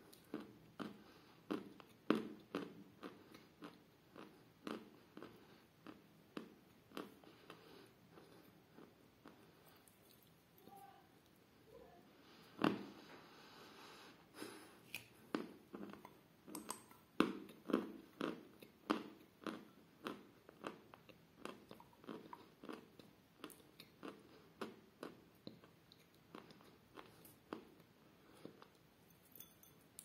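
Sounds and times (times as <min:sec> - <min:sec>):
chalk crunching while chewing: 0:14.4 - 0:28.8.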